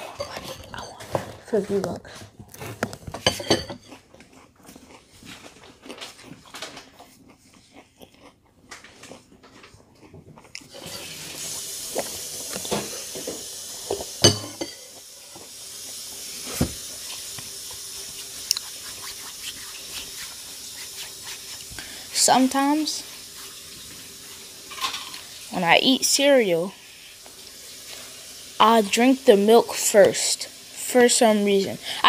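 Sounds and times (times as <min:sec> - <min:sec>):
chewing cereal: 0:02.0 - 0:12.8, 0:14.9 - 0:25.5.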